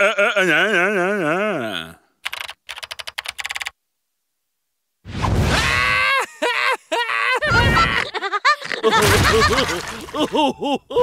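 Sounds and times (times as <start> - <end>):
men laughing heartily: 6.0 - 11.0.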